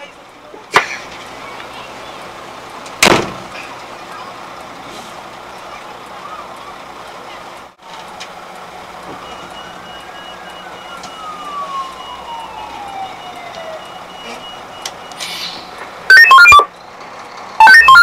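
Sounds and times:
vehicle hum: 0.0s - 18.0s
siren winding down: 9.2s - 15.2s, 16.1s - 16.7s, 17.6s - 18.0s
high-pitched beeping: 16.1s - 16.7s, 17.6s - 18.0s.

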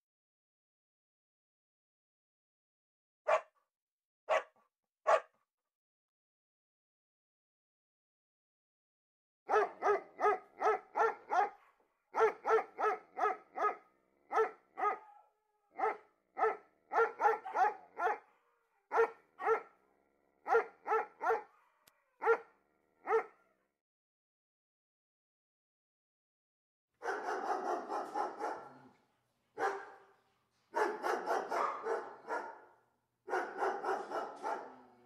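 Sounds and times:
dog barking: 3.3s - 3.6s, 4.3s - 5.4s, 9.5s - 19.8s, 20.4s - 23.6s, 27.0s - 29.0s, 29.6s - 35.0s.

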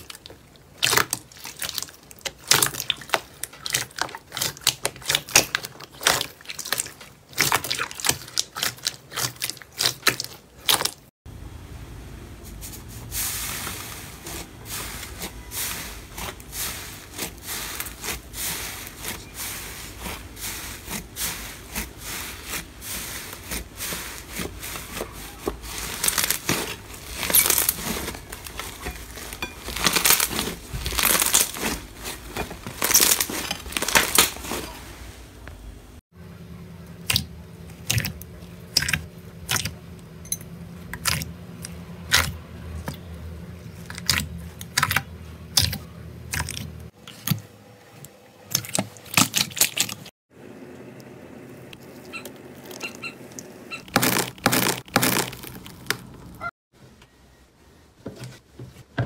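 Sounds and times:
slime crackling and tearing: 20.8s - 34.6s, 53.9s - 56.5s.

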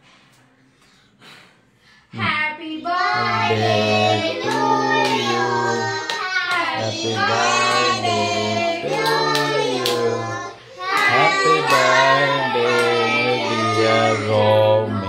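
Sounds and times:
children singing: 3.0s - 15.0s
hand-clapping: 4.5s - 5.4s, 6.0s - 6.8s, 8.9s - 10.1s, 10.9s - 13.1s.

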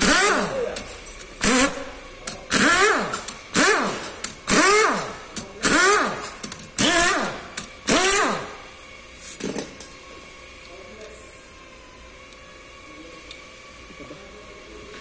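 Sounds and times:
pneumatic wrench bursts: 0.0s - 8.6s.

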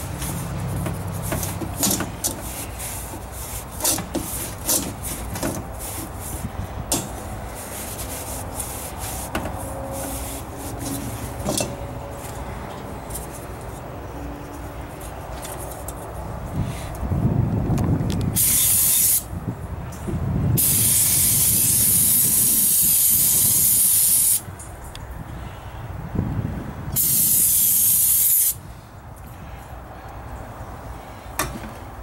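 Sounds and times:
metal clicks and knocks: 0.8s - 2.4s
steady low rumble: 19.3s - 21.2s.

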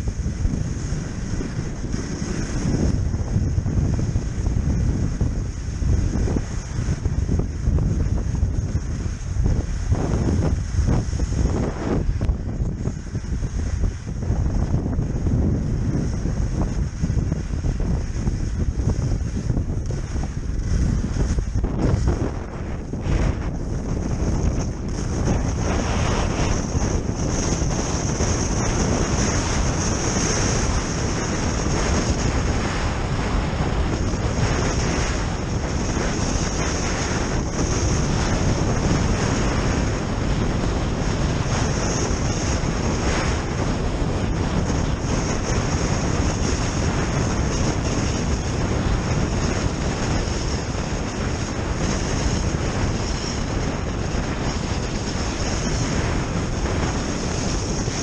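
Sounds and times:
skis gliding over snow: 0.0s - 58.0s
wind on camera microphone: 0.0s - 58.0s.

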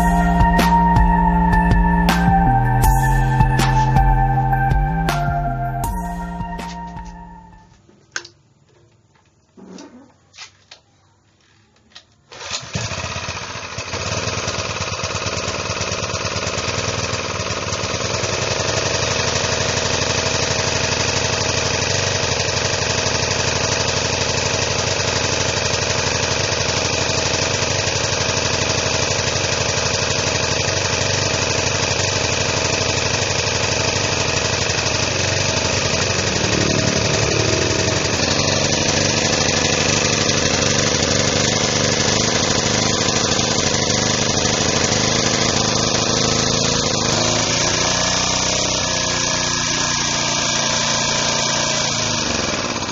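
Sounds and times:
generator engine running: 0.0s - 7.7s, 12.9s - 52.9s.

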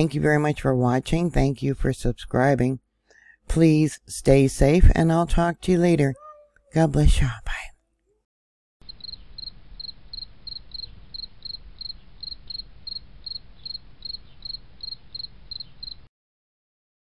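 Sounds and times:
cricket-like chirping: 8.8s - 16.1s.

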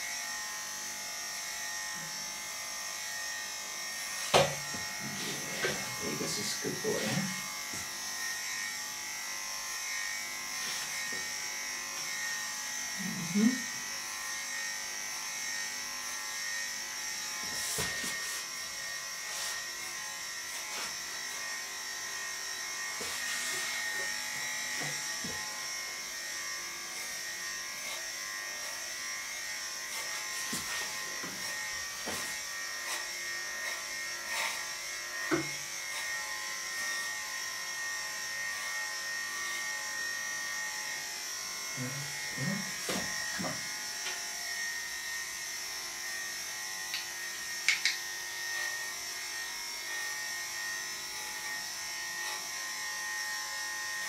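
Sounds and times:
electric clippers whining: 0.0s - 54.0s.

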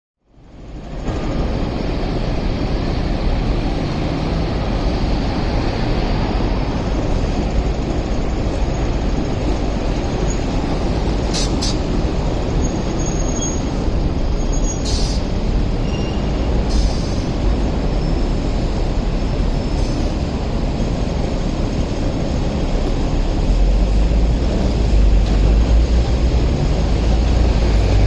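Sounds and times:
tram wheels rumbling on rails: 0.3s - 28.0s
wheel squeal: 12.5s - 18.6s.

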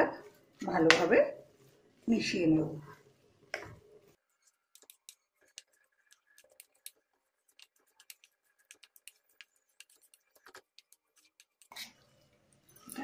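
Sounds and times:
spatula scraping a pan: 4.4s - 12.3s.

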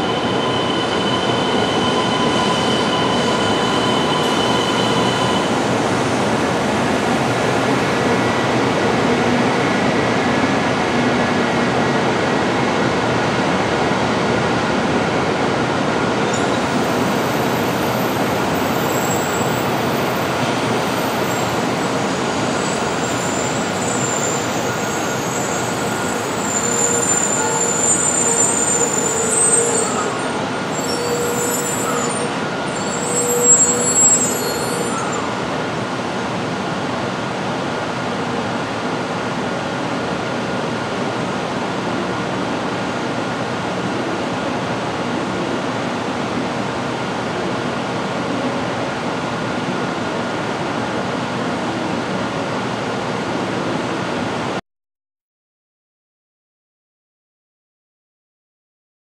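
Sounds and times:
train brakes squealing: 0.0s - 9.3s, 16.3s - 36.0s
standing train humming: 0.0s - 52.2s.

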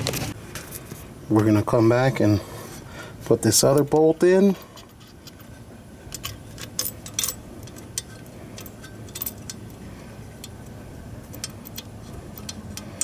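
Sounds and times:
light metallic clicks and clinks: 6.1s - 9.8s, 10.4s - 13.0s.

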